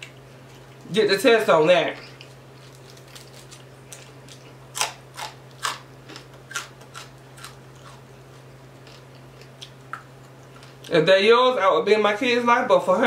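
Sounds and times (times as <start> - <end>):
faint steady hum: 0.0 - 13.0
fried fish crunching and crackling: 2.0 - 11.0.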